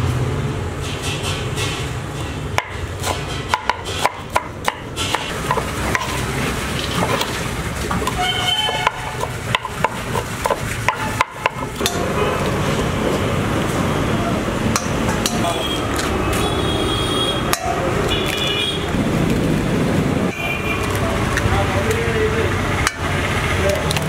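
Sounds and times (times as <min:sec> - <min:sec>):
knife chopping on wooden board: 0:02.6 - 0:06.2, 0:08.0 - 0:11.9.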